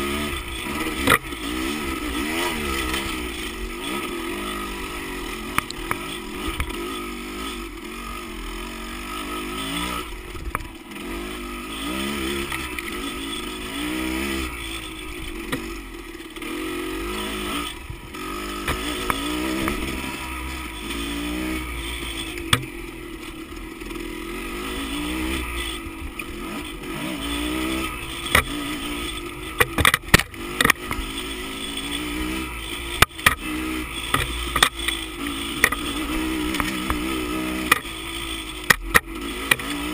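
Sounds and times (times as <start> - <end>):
dirt bike engine revving: 0.0 - 39.9
sharp knocks and clatter: 22.5 - 22.7, 29.6 - 31.0.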